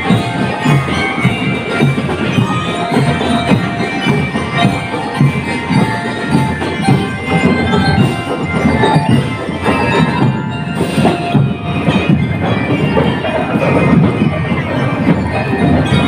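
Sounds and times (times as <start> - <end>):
bell-lyre melody: 0.0 - 16.0
marching drumbeats: 0.0 - 16.0.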